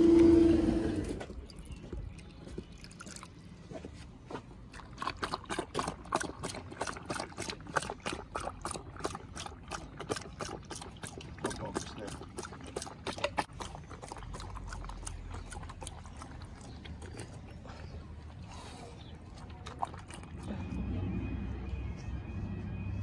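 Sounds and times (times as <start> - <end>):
dog lapping water: 1.2 - 3.7, 4.3 - 20.8.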